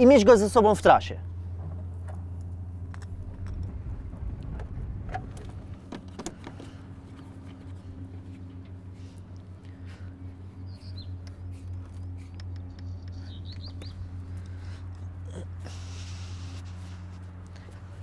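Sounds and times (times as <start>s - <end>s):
truck engine idling: 0.0s - 18.0s
bird chirps: 10.5s - 14.4s
light clicks: 11.2s - 15.1s.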